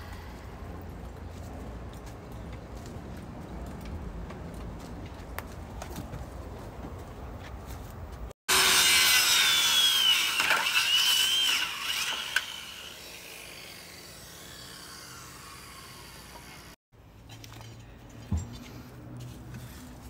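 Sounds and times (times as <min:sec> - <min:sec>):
circular saw cutting wood: 0:08.5 - 0:16.8.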